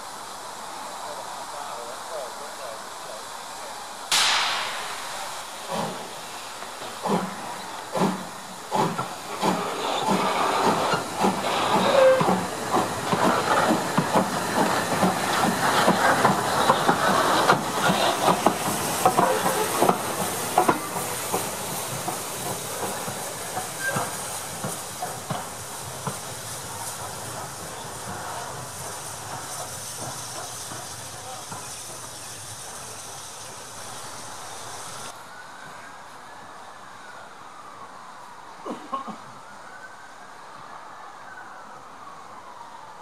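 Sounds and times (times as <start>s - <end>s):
steam hissing: 0.0s - 35.2s
steam locomotive exhaust beats: 4.1s - 35.1s.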